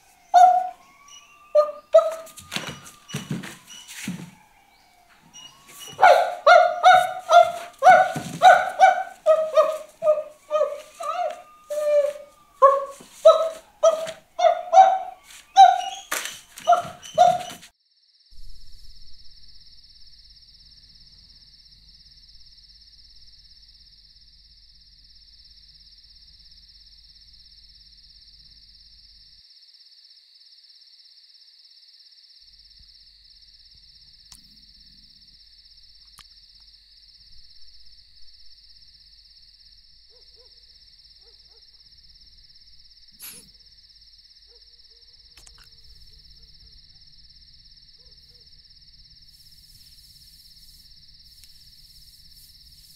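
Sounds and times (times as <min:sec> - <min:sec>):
insects chirring: 0:00.0 - 0:52.9
low hum: 0:18.4 - 0:29.4.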